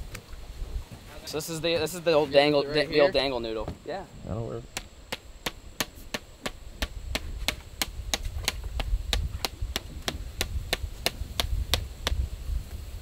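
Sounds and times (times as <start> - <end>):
hammer striking pipe stake: 4.8 - 12.2.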